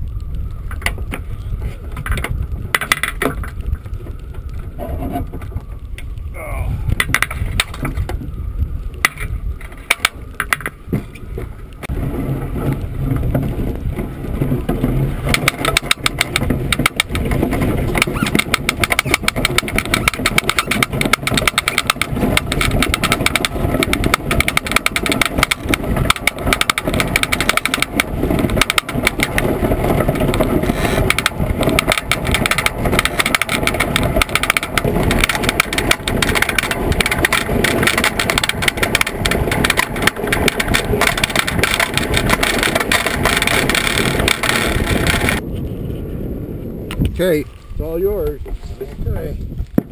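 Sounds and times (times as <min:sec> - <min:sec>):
iceboat rumbling on ice: 0:00.0 - 0:49.9
wind buffeting microphone: 0:00.0 - 0:49.9
runners and frame rattling: 0:09.0 - 0:45.4.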